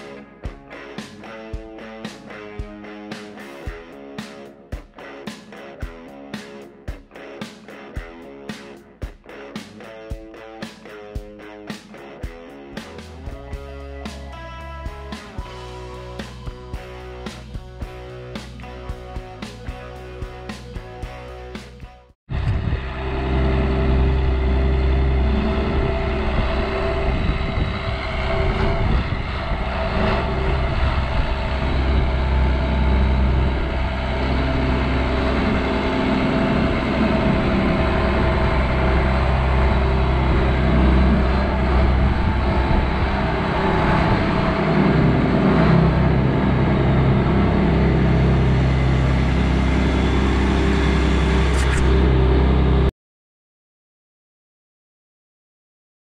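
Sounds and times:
combine harvester engine drone: 0:22.3 - 0:52.9.

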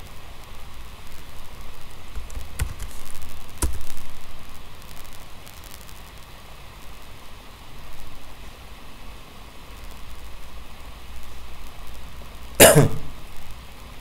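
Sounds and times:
low rumble with faint hiss: 0:00.0 - 0:14.0
sharp clicks: 0:02.2 - 0:04.0.

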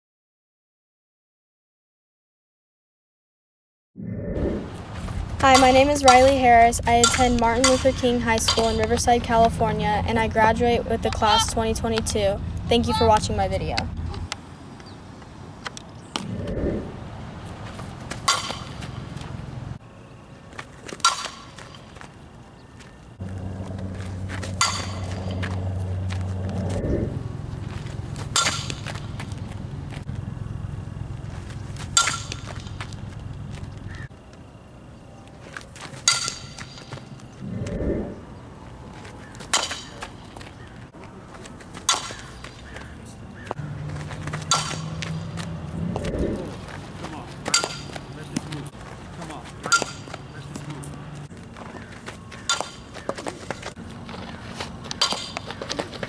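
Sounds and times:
low rumble: 0:04.0 - 0:08.2, 0:16.1 - 0:18.1, 0:23.2 - 0:33.9, 0:37.3 - 0:38.6, 0:45.1 - 0:47.0
metal bat pinging on ball: 0:07.0 - 0:09.0, 0:24.5 - 0:25.5, 0:28.3 - 0:28.9, 0:32.0 - 0:32.8, 0:44.4 - 0:45.4, 0:47.5 - 0:48.0, 0:49.7 - 0:50.2
bat striking ball ping: 0:18.2 - 0:18.8, 0:21.0 - 0:21.6, 0:24.6 - 0:25.5, 0:28.3 - 0:29.0, 0:31.9 - 0:32.8, 0:39.5 - 0:40.1, 0:41.8 - 0:42.8, 0:44.3 - 0:45.4, 0:47.5 - 0:48.0, 0:52.4 - 0:53.2, 0:54.9 - 0:55.6.

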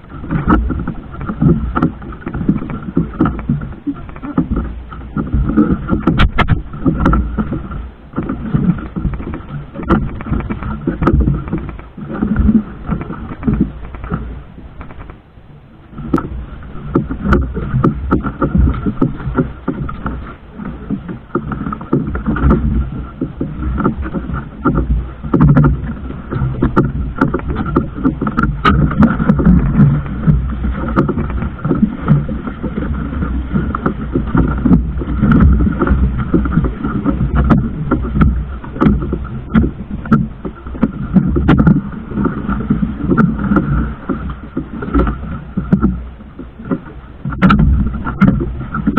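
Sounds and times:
motor boat engine drone: 0:00.0 - 0:48.9
rushing water and wind: 0:00.0 - 0:48.9
scattered knocks: 0:47.3 - 0:48.9.

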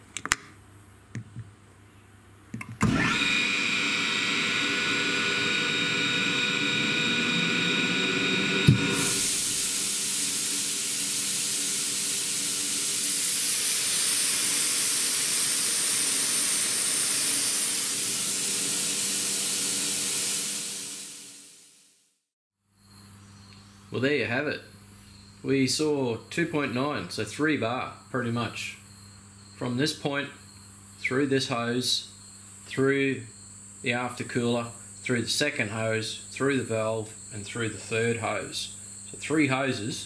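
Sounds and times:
air compressor whining: 0:02.6 - 0:21.7
loud rush of air: 0:08.6 - 0:12.2.

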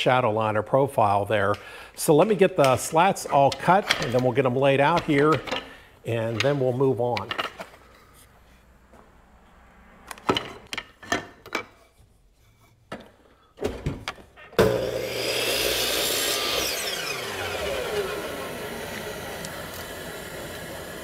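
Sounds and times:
miter saw cutting wood: 0:14.6 - 0:21.0.

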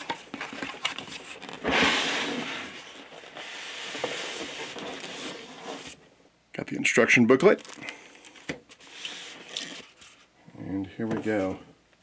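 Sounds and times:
box sliding out of cardboard sleeve: 0:01.4 - 0:06.0.

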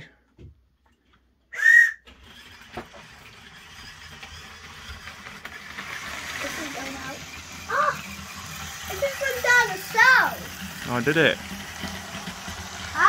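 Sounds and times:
shrill whistle blast: 0:01.5 - 0:02.1
model train running on track: 0:01.6 - 0:13.0.

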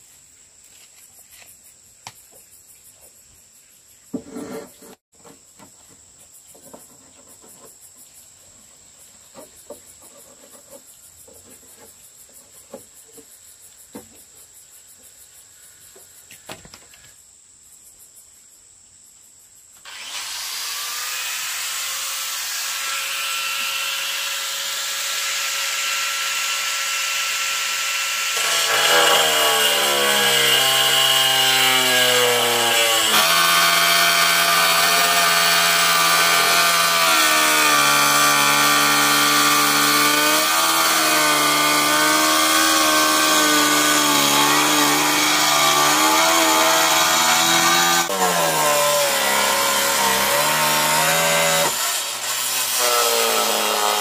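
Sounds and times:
electric power saw whining: 0:19.8 - 0:54.0.

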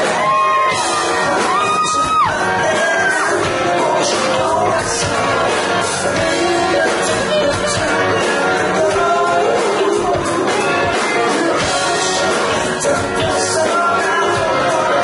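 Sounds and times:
electric guitar: 0:00.0 - 0:15.0
live rock band playing: 0:00.0 - 0:15.0
person singing: 0:00.0 - 0:15.0.

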